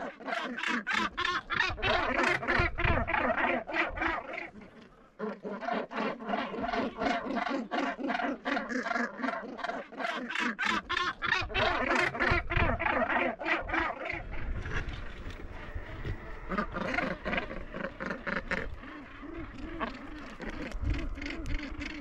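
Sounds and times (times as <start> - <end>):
gannet colony calling: 0.0 - 22.0.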